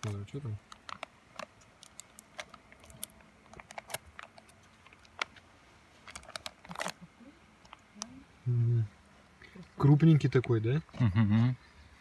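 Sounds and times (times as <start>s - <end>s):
foil seal being peeled and torn: 0.0s - 5.4s, 6.0s - 7.0s.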